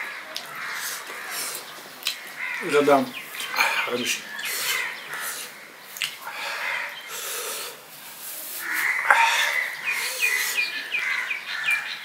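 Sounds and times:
man eating with breathy huffs: 0:00.7 - 0:01.7, 0:03.4 - 0:05.6, 0:06.2 - 0:10.8
bird chirping rapidly: 0:08.7 - 0:12.0.

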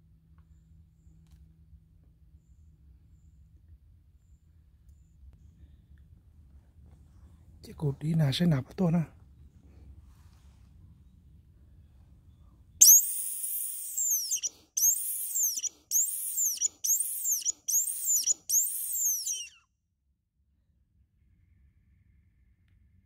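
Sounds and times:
high squeaky call: 0:12.8 - 0:19.6.

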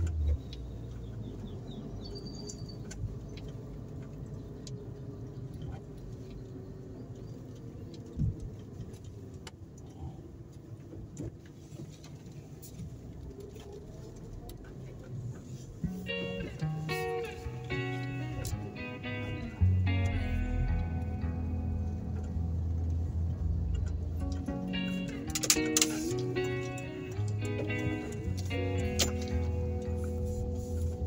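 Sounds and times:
car engine and road noise: 0:00.0 - 0:31.0
bird chirping: 0:00.5 - 0:03.4
light clicks and rattles: 0:02.3 - 0:31.0.

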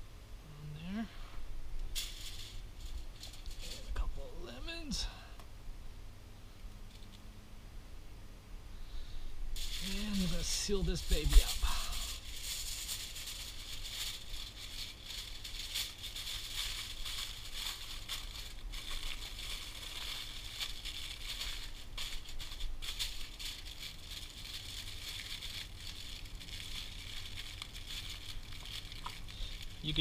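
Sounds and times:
steady high hiss: 0:00.0 - 0:30.0
aluminium foil crinkling: 0:01.8 - 0:04.0, 0:09.6 - 0:30.0.

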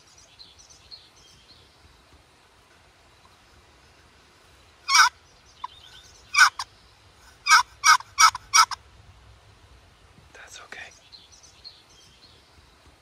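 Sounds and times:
turkey call rasping yelps: 0:04.9 - 0:05.1, 0:06.3 - 0:06.7, 0:07.4 - 0:08.8.

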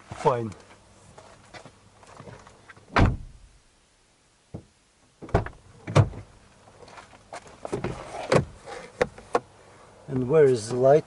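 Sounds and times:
heavy thumps in car cabin: 0:02.9 - 0:03.4, 0:04.6 - 0:06.3.

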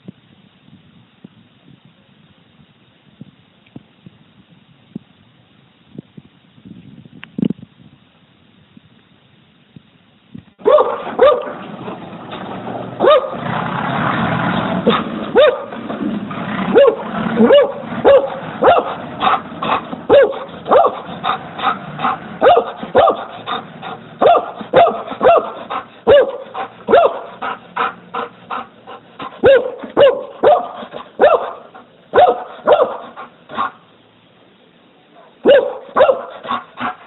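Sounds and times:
dog barking: 0:10.6 - 0:11.7, 0:13.0 - 0:13.4, 0:14.8 - 0:15.8, 0:16.7 - 0:33.8, 0:35.1 - 0:37.0.

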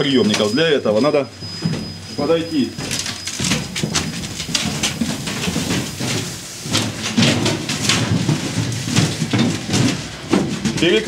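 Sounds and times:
footsteps: 0:00.2 - 0:11.0
clothing rustle: 0:02.9 - 0:10.6.

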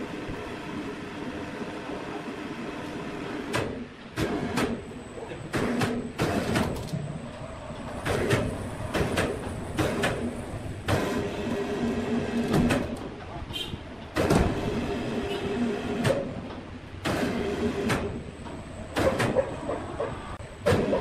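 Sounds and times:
machinery clunks and knocks: 0:05.5 - 0:07.0, 0:07.8 - 0:11.4, 0:12.3 - 0:13.3, 0:14.0 - 0:14.9.

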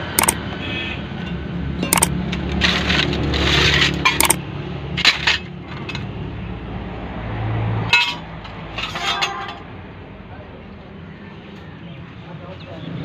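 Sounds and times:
metal pieces clinking and scraping: 0:00.0 - 0:00.4, 0:01.8 - 0:04.4, 0:05.0 - 0:06.0, 0:07.9 - 0:09.6
sharp metallic clicks: 0:00.0 - 0:00.4, 0:01.8 - 0:02.2, 0:04.2 - 0:04.4.

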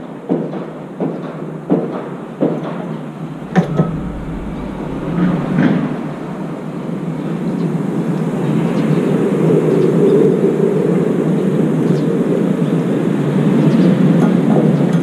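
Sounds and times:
steady background hum: 0:03.2 - 0:08.0.

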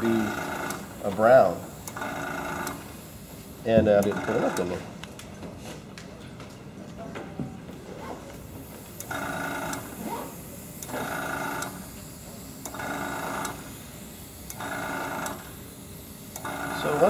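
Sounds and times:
airbrush compressor humming: 0:00.0 - 0:05.0, 0:08.4 - 0:17.0.

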